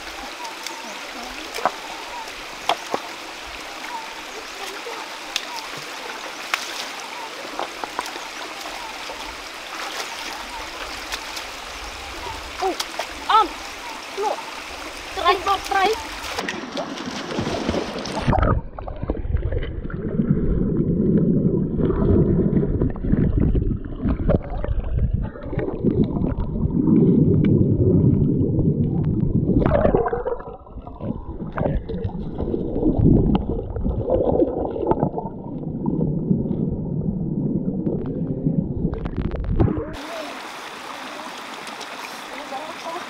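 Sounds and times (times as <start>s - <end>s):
water splashing: 0.0s - 43.0s
knocks and bumps underwater: 17.3s - 40.0s
muffled underwater rumble and gurgling: 18.2s - 40.0s.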